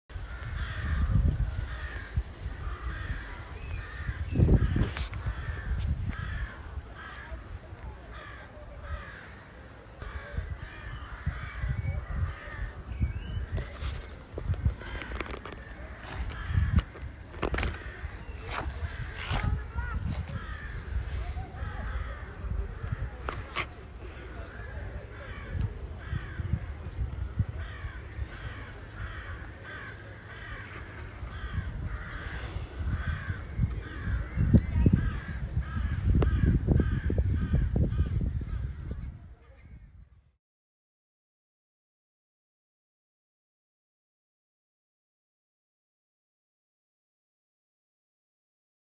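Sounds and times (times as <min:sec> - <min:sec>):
crows cawing: 0:00.2 - 0:12.8, 0:14.5 - 0:26.8, 0:27.4 - 0:38.9.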